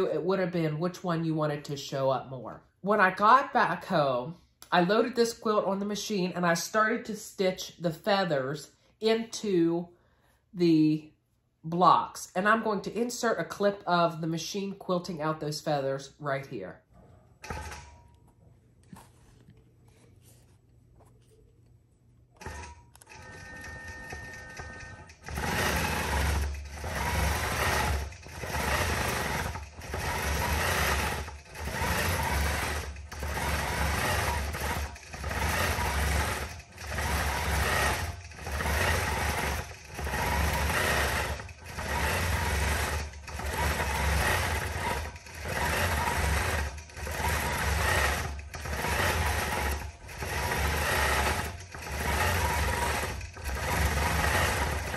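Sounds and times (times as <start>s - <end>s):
quilting machine stitching: 17.4s - 18.1s, 22.4s - 54.9s.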